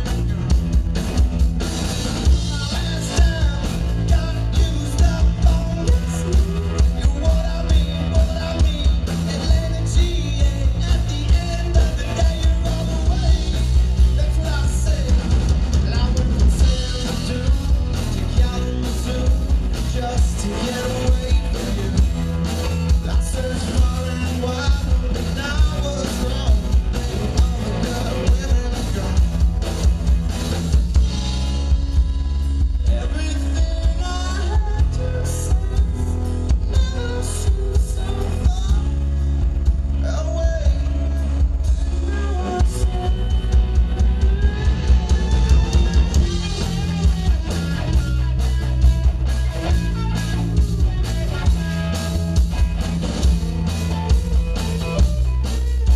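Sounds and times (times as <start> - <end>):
drum kit beat: 0.0 - 55.9
electric guitars: 0.0 - 55.9
person singing: 2.2 - 29.4, 32.7 - 48.0.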